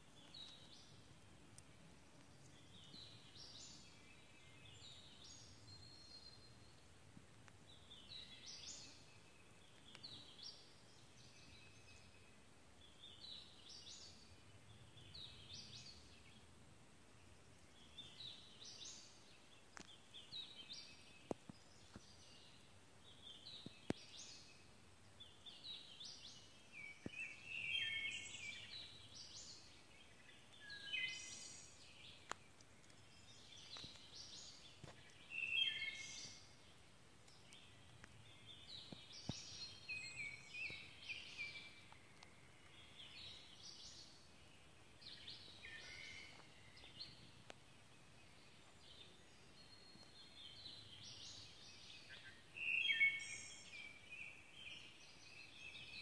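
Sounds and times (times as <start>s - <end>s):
songbirds singing: 0.0s - 56.0s
faint sharp clicks: 1.5s - 3.0s, 7.2s - 7.6s, 9.7s - 10.2s, 19.7s - 20.0s, 21.2s - 22.1s, 23.6s - 24.2s, 32.2s - 35.3s, 37.2s - 39.7s, 41.4s - 43.1s, 47.4s - 47.6s.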